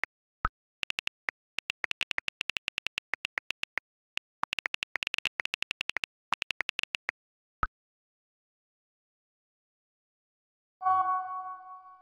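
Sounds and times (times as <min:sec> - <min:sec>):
phone keyboard typing clicks: 0:00.8 - 0:07.1.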